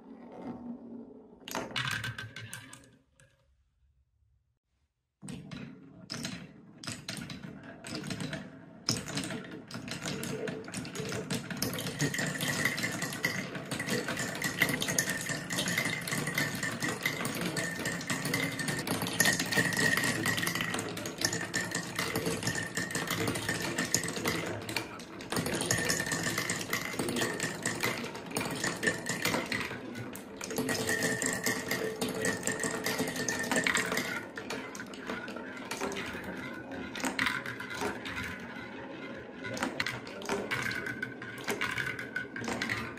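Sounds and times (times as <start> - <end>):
marbles rattling down wooden run: 9.9 - 42.9.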